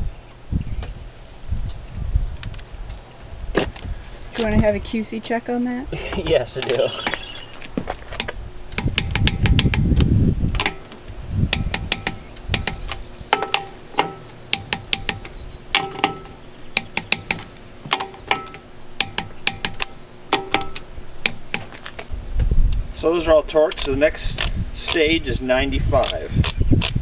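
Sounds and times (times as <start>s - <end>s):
torque wrench clicking: 23.7s - 25.1s.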